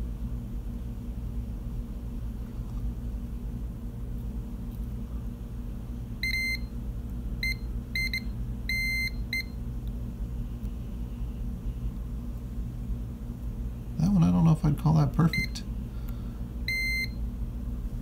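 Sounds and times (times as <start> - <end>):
multimeter continuity beeps: 6.2 - 6.7, 7.4 - 9.6, 15.2 - 15.7, 16.7 - 17.2.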